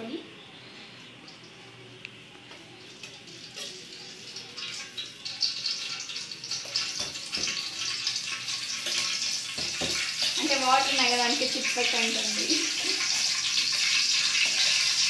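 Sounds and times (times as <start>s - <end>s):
oil hissing and crackling: 3.0s - 15.0s.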